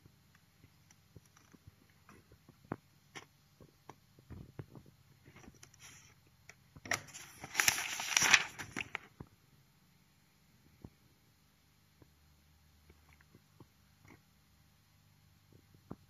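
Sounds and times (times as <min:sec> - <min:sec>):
page turning: 0:05.3 - 0:06.2, 0:06.8 - 0:09.1
paper rustling and tapping: 0:06.8 - 0:09.3.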